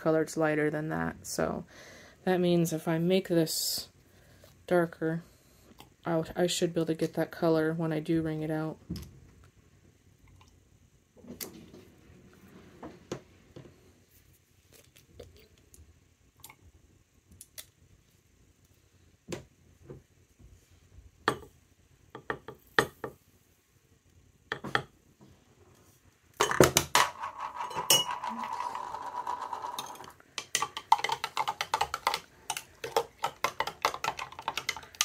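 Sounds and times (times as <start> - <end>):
metal spoon clinking in glass jar: 27.6 - 28.6.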